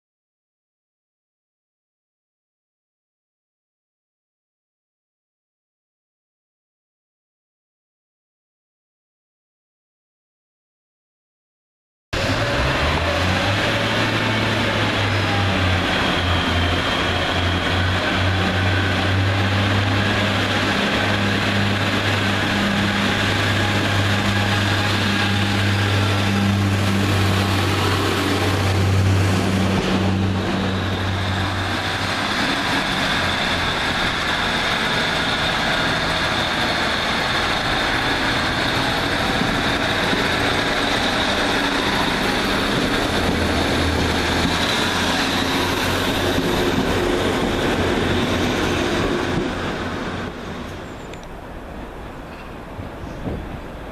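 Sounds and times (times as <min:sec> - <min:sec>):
train diesel engine droning: 0:12.2 - 0:53.9.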